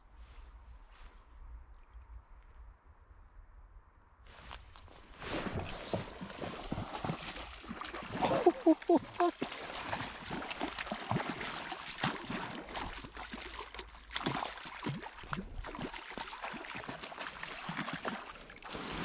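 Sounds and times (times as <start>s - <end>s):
fish splashing in stream: 5.4s - 19.0s.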